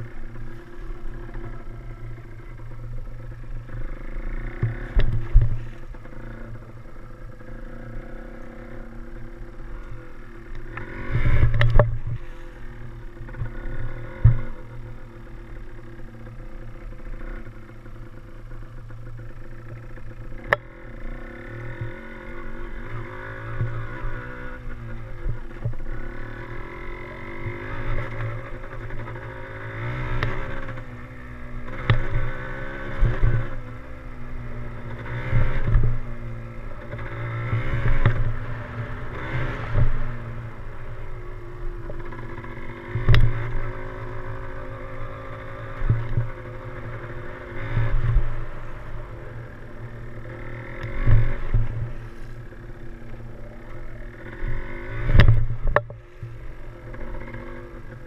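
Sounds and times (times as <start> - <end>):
two-stroke motorcycle engine: 0.0 - 58.0.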